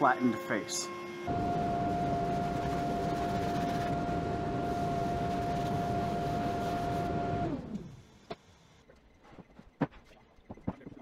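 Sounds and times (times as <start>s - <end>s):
shop vacuum whining: 0.0s - 8.0s
vacuum sucking wood chips: 0.7s - 7.8s.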